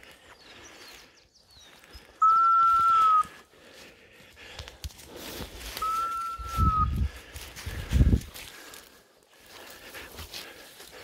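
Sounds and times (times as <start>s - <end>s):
scrub rustling underfoot: 3.3s - 11.0s.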